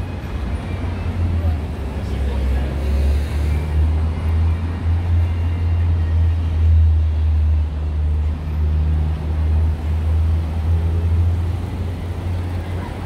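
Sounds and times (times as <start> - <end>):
heavy traffic rumble: 0.0 - 13.0.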